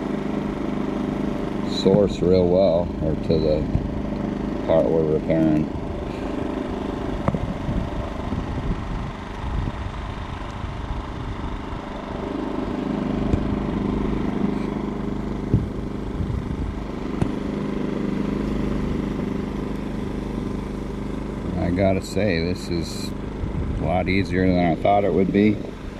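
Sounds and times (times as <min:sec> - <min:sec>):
engine humming: 0:00.0 - 0:25.9.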